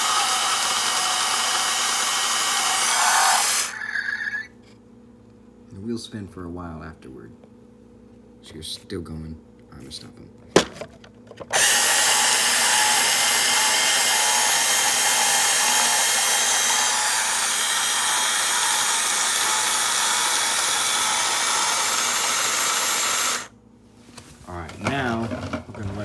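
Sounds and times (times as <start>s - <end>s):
toy truck mechanical noise: 0.0s - 4.4s, 11.5s - 23.5s.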